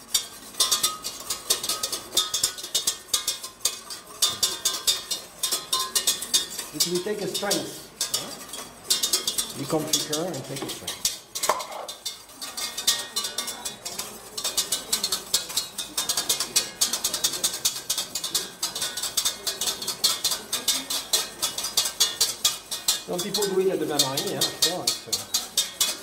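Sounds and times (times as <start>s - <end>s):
whisk clinking and scraping pan: 0.0s - 26.0s.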